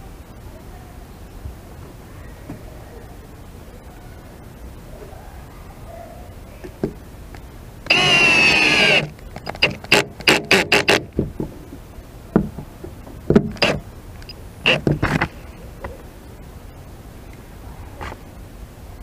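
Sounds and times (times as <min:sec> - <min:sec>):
cordless drill driving a screw: 0:07.9 - 0:11.1, 0:13.6 - 0:13.8.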